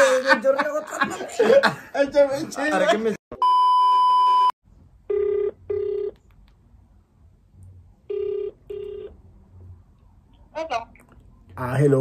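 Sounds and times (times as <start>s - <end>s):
telephone ringback tone: 5.1s - 6.1s, 8.1s - 9.1s.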